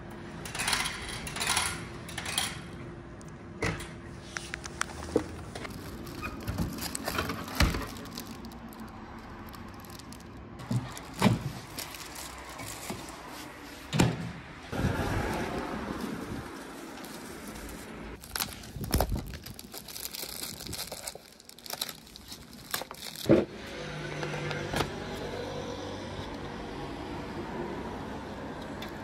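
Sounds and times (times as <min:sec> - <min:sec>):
plastic rustling: 0:05.5 - 0:13.9, 0:14.8 - 0:23.3.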